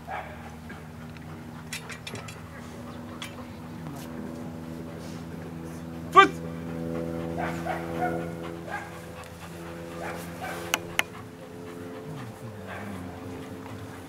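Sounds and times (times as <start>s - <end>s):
dog panting: 0.0s - 14.0s
sharp clicks: 10.7s - 11.2s.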